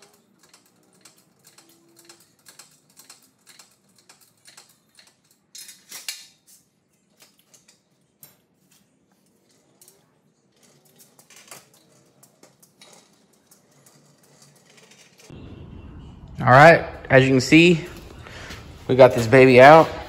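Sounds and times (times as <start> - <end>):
metal scrape: 8.7 - 20.0.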